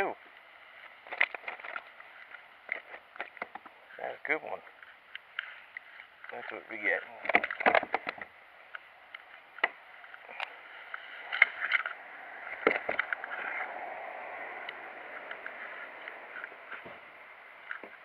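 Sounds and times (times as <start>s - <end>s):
knocks and clicks in plastic kayak: 7.2s - 8.3s.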